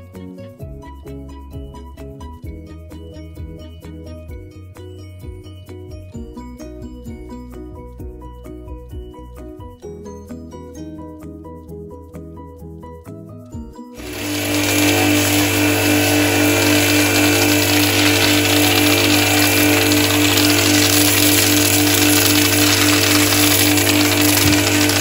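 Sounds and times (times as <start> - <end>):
quiet music: 0.0 - 25.0
pressure washer pump humming: 14.0 - 25.0
water jet hissing on wood: 14.0 - 25.0.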